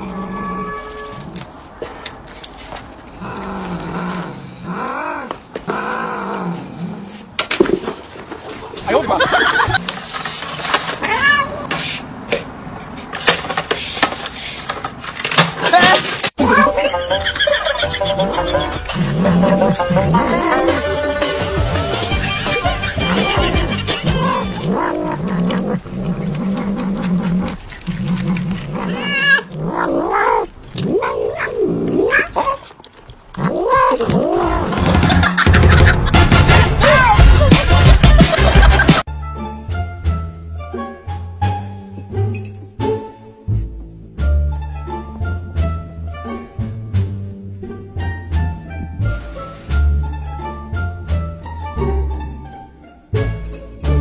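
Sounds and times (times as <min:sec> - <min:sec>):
cat meowing: 0:00.0 - 0:01.4, 0:11.0 - 0:11.7, 0:28.7 - 0:32.7, 0:33.4 - 0:34.5.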